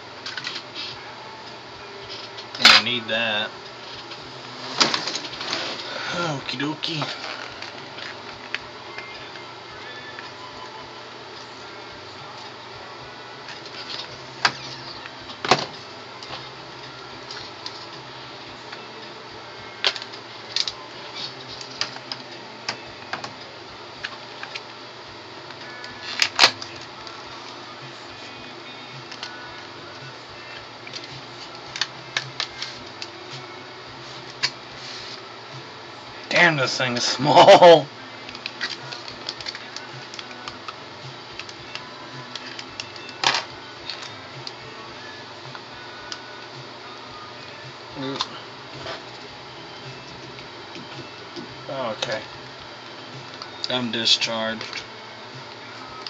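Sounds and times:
steady background hum: 0.0s - 56.0s.

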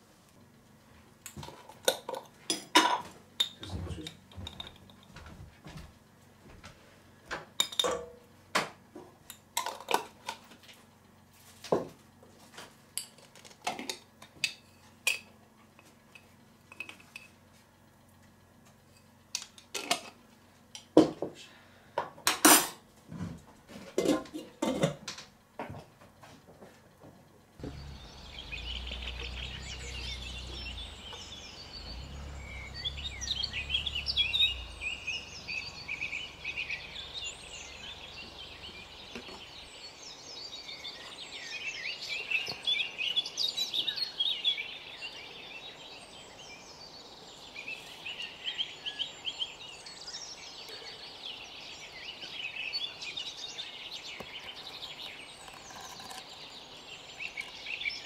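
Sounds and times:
low steady rumble: 27.4s - 40.7s
birds singing: 27.6s - 58.0s
metal spoon clinking on pot and jars: 54.7s - 56.4s.

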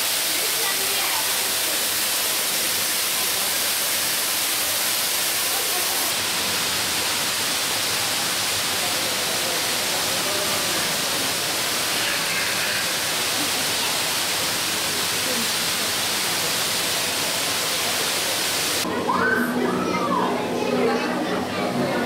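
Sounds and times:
faint voices: 7.0s - 22.0s.

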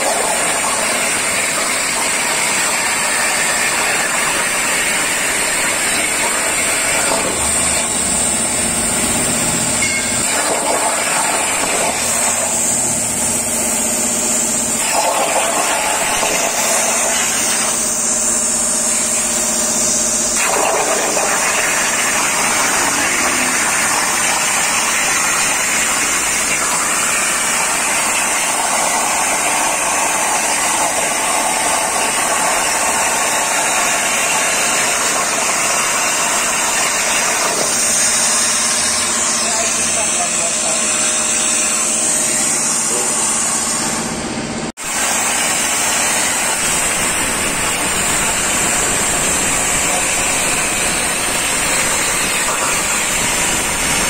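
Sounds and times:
plasma cutter hissing: 0.0s - 44.2s, 44.8s - 54.0s.

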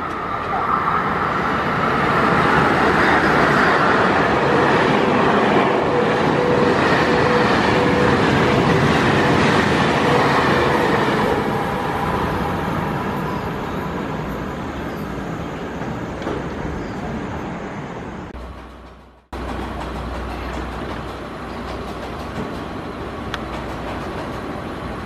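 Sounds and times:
train wheels on rails: 0.0s - 25.0s.

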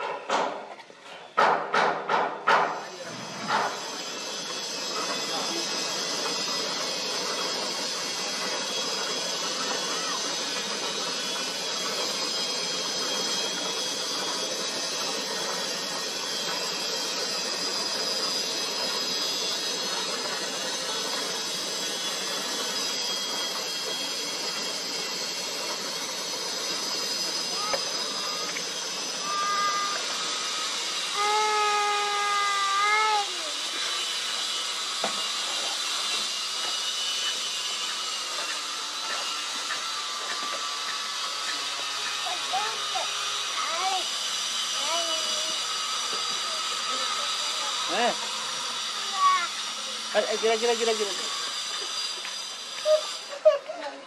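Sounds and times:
cement mixer running: 27.1s - 54.0s
cicadas calling: 27.2s - 34.5s, 39.6s - 53.5s
cicadas buzzing: 27.5s - 33.6s.

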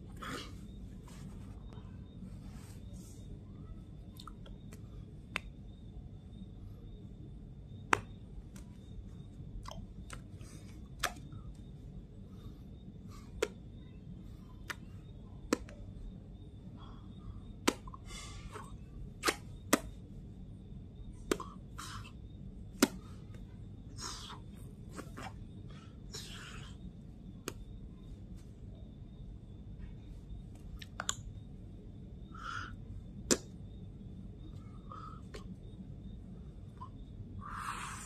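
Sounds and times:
faint high steady tone: 0.0s - 19.1s
steady low hum: 0.0s - 38.0s.

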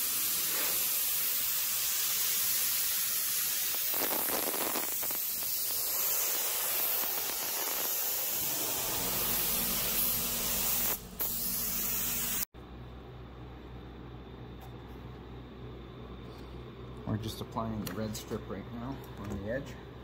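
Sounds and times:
spray adhesive hissing: 0.0s - 12.5s
low hum: 12.6s - 17.4s.

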